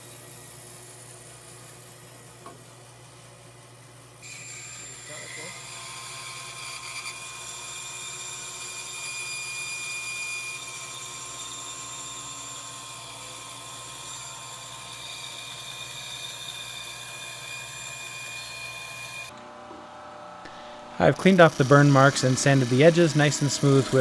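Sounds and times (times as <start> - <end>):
bandsaw cutting plywood: 4.2 - 19.3, 21.0 - 24.0.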